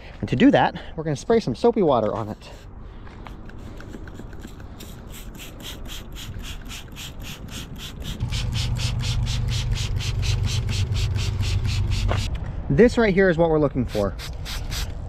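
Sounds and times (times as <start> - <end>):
steady low hum: 2.5 - 15.0
spray bottle squirting: 3.2 - 12.3, 14.1 - 15.0.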